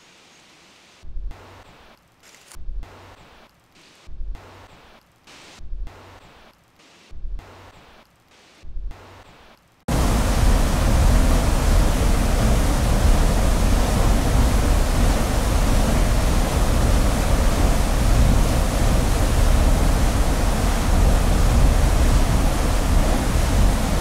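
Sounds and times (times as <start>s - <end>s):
loud steady rushing noise: 9.9s - 24.0s.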